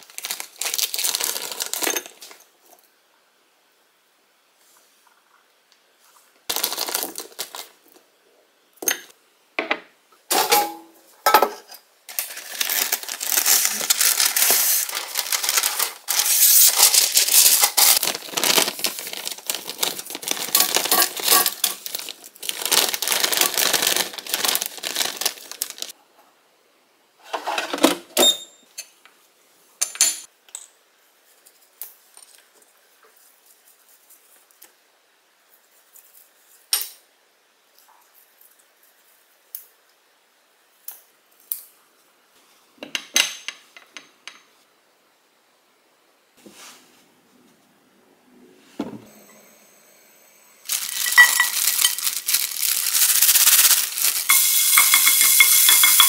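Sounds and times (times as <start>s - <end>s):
plastic packaging crinkling: 0.0s - 2.4s, 6.5s - 7.8s, 12.1s - 25.9s, 50.6s - 56.0s.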